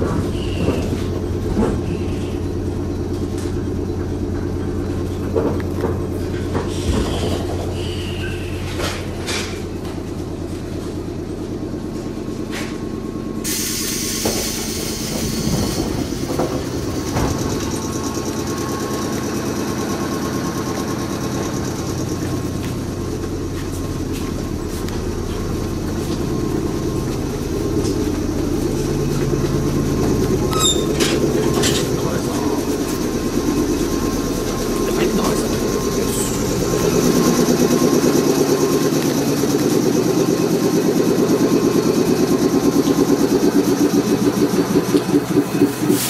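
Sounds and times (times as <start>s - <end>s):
electric train humming: 0.0s - 46.0s
hiss: 13.4s - 16.4s, 45.8s - 46.0s.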